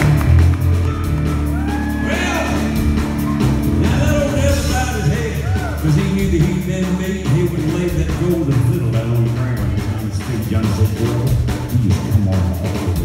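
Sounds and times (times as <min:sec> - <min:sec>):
electric guitar: 0:00.0 - 0:04.7
bass guitar: 0:00.0 - 0:13.0
drum kit: 0:00.0 - 0:13.0
man singing: 0:03.8 - 0:12.7.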